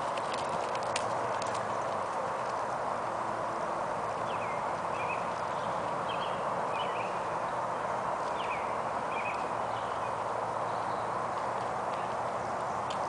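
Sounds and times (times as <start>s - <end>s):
birds chirping: 4.1s - 13.0s.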